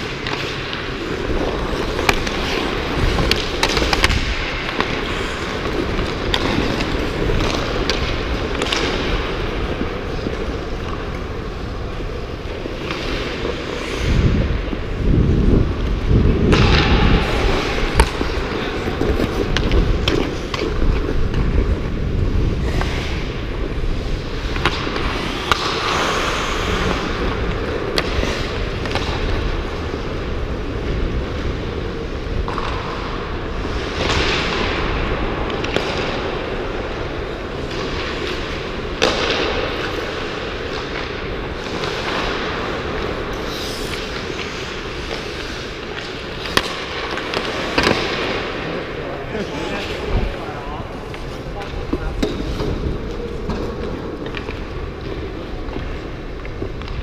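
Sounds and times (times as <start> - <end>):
hockey sticks and puck clacking: 0.0 - 57.0
skate blades scraping ice: 0.0 - 57.0
wind rumble on microphone: 13.3 - 25.4.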